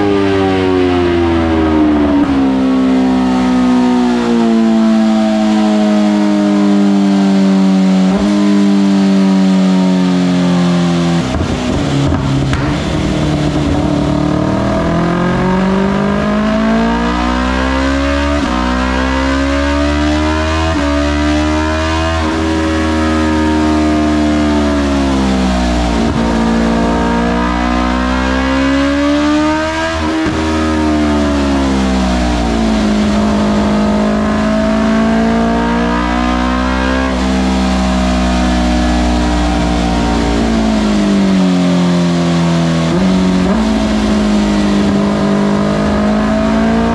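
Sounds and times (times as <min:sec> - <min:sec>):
motorcycle engine revving: 0:00.0 - 0:46.9
steady low drone: 0:10.1 - 0:18.0, 0:22.0 - 0:46.9.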